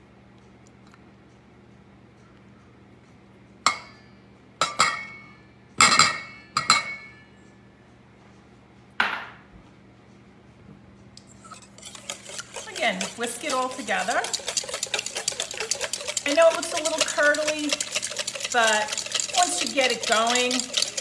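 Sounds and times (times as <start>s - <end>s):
clinks on metal bowl: 4.6s - 7.3s, 11.5s - 21.0s.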